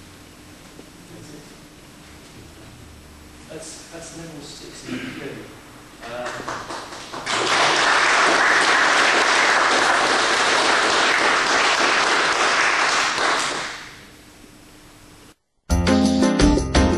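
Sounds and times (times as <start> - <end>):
group of people applauding: 6.0 - 14.0.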